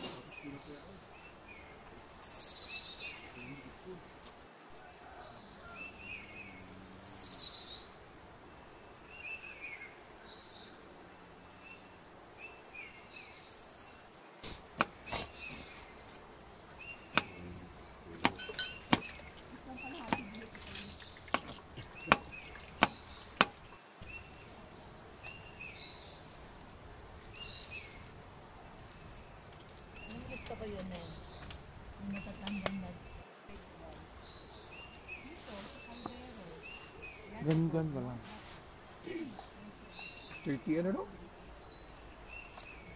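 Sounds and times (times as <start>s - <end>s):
small birds chirping: 0.0s - 42.9s
knife chopping on plastic board: 18.2s - 19.1s.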